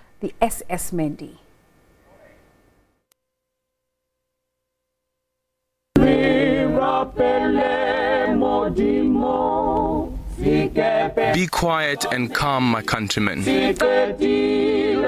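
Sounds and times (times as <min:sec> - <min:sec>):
choir singing with vibrato: 0:06.0 - 0:15.0.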